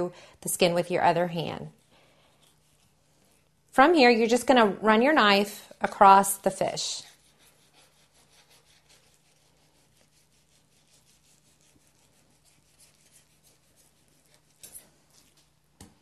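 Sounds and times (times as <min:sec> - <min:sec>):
knife scraping fish skin: 0:07.0 - 0:15.6.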